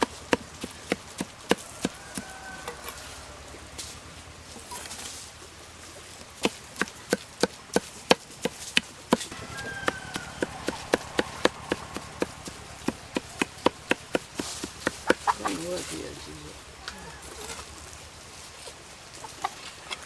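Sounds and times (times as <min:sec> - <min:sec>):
cleaver chopping meat on wood: 0:00.0 - 0:02.8, 0:06.4 - 0:15.4.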